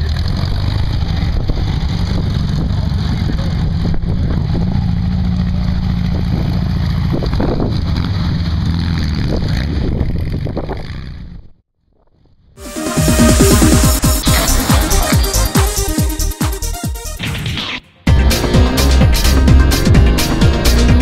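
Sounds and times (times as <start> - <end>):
car engine droning: 0.0 - 11.4.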